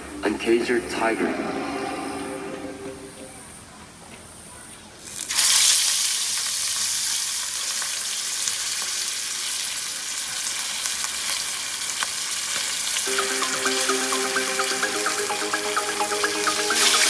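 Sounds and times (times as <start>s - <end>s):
oil popping and crackling: 5.0s - 13.1s
fish sizzling in hot oil: 5.1s - 13.1s.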